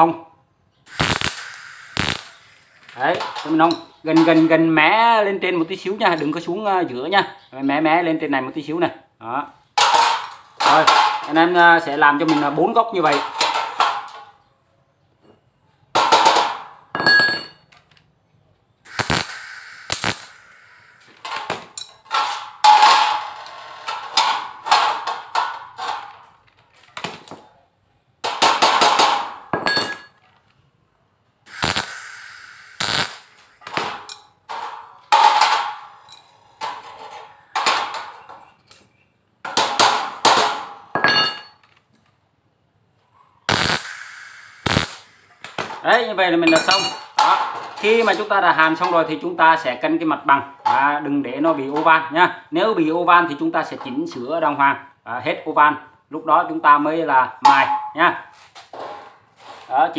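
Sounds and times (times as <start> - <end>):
welder arc bursts: 0.9 - 3.5, 18.9 - 21.6, 31.5 - 34.2, 43.5 - 45.6.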